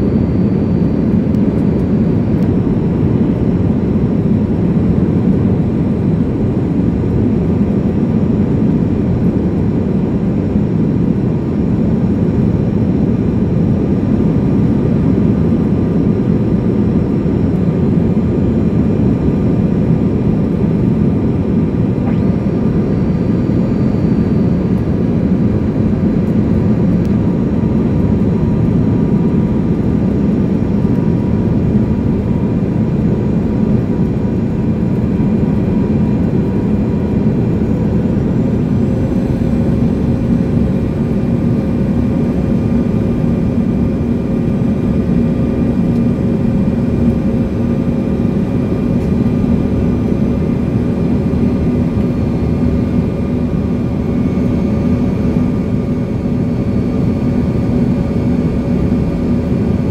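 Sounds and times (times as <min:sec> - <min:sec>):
faint steady whine: 0:00.0 - 0:59.9
jet engine cabin drone: 0:00.0 - 0:59.9.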